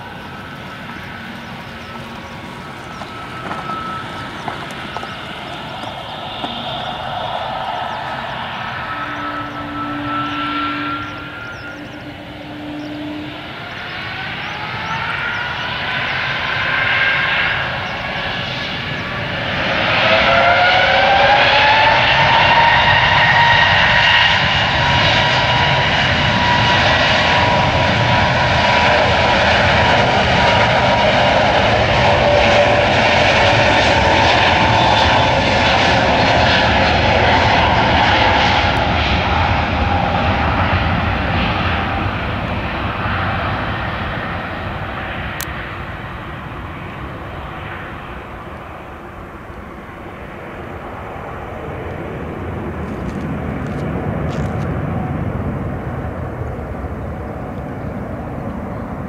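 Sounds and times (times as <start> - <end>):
jet engines spooling up: 0.0 - 59.0.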